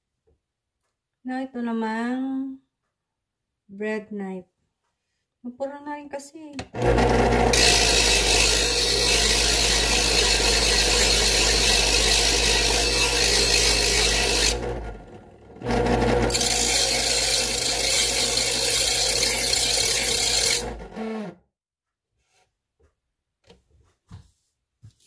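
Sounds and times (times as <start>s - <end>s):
blade grinding on sharpening wheels: 6.8s - 21.3s
knife sharpener motor humming: 6.8s - 21.4s.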